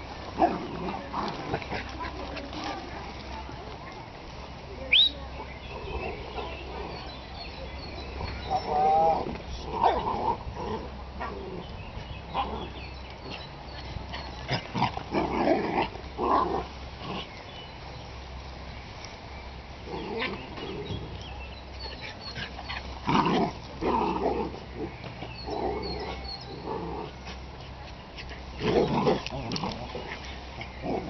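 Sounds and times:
dogs growling: 0:00.0 - 0:02.8, 0:05.4 - 0:07.2, 0:08.0 - 0:11.7, 0:12.3 - 0:17.4, 0:19.8 - 0:31.0.

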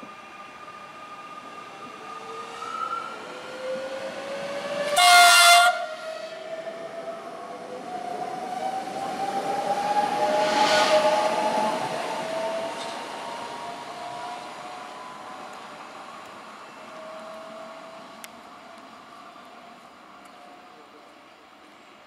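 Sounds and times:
train horn blast: 0:04.9 - 0:06.0
train wheels on rails: 0:07.7 - 0:22.0.

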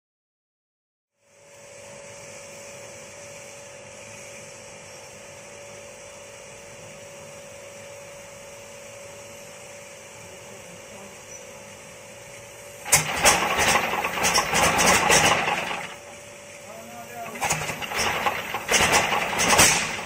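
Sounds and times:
whining machine hum: 0:10.9 - 0:20.0.

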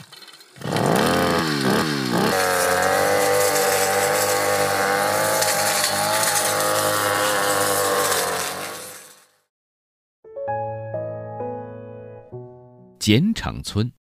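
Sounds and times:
brush cutter engine running: 0:00.0 - 0:09.5.

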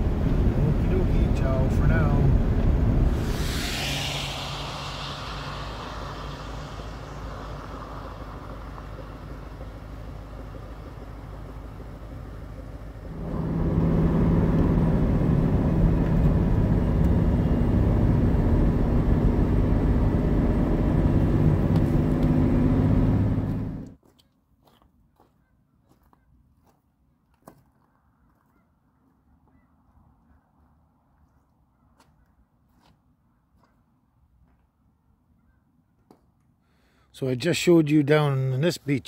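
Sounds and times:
truck engine and road noise: 0:00.0 - 0:24.0.

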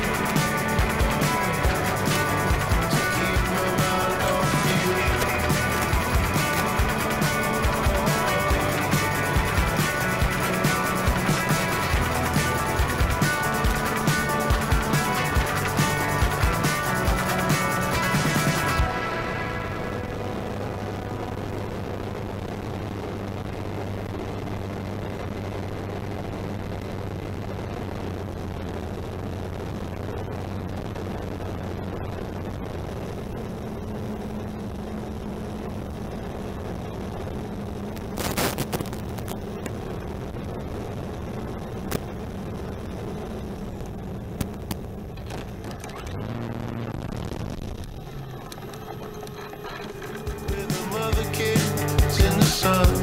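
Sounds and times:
model plane motor droning: 0:48.3 - 0:50.6.

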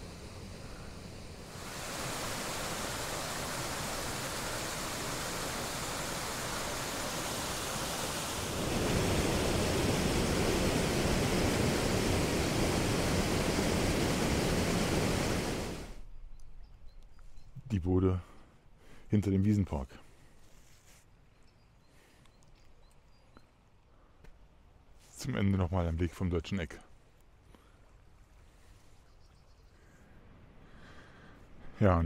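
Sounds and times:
water rushing over a weir: 0:00.0 - 0:16.0.

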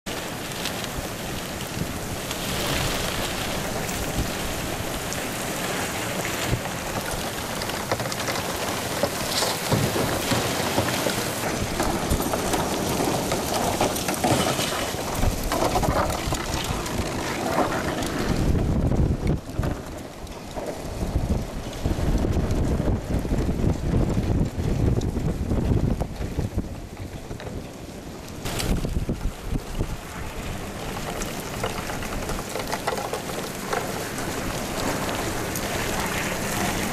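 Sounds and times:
heavy rain on pavement: 0:00.0 - 0:36.9
wind buffeting the microphone: 0:00.1 - 0:36.9.

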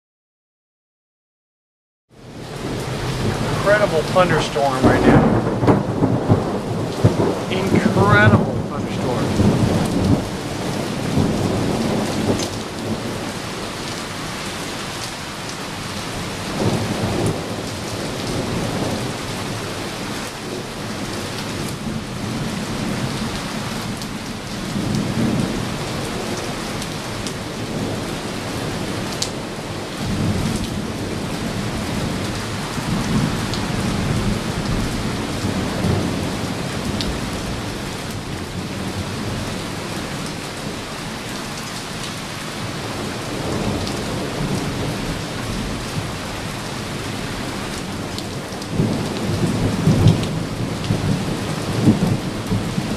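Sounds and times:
steady rain: 0:02.1 - 0:52.9
thunder rumbling: 0:02.6 - 0:13.7.

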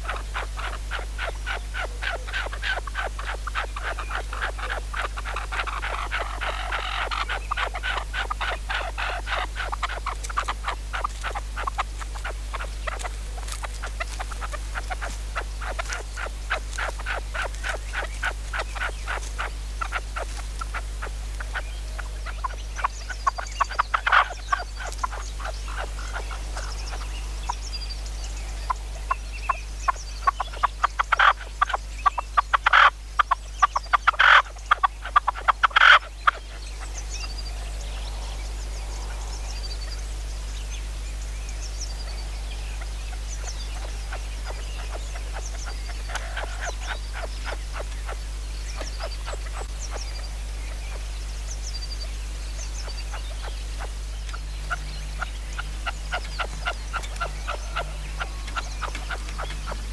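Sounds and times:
partridges clucking chatter: 0:00.0 - 0:27.2, 0:53.4 - 0:59.9
sharp loud bird calls: 0:00.0 - 0:59.9
small birds chirping: 0:00.0 - 0:59.9.

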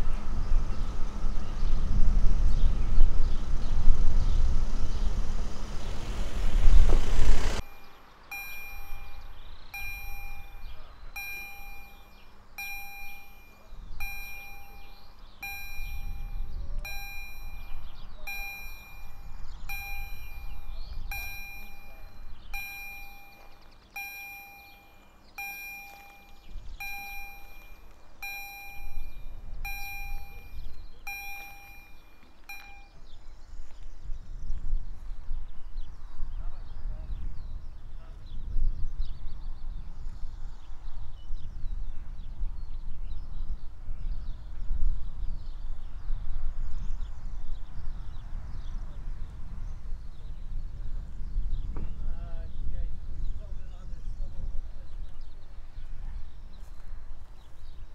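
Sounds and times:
level crossing warning bell: 0:07.4 - 0:33.1.

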